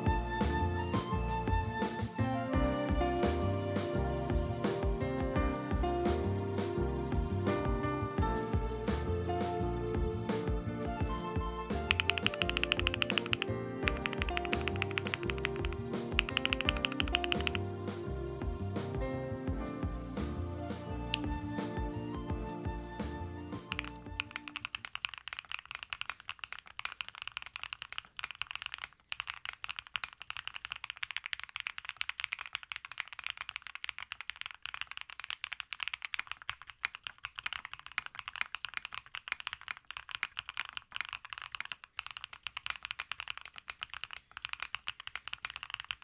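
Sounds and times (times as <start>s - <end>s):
background music: 0.0s - 24.8s
fast typing on mechanical keyboard: 11.6s - 17.7s, 23.7s - 46.0s.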